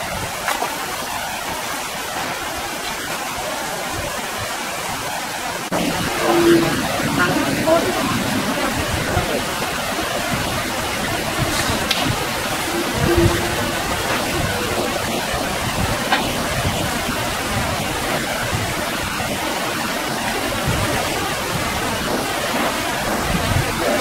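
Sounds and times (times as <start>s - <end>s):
flowing river water: 0.0s - 24.0s
low bumps: 5.7s - 19.4s.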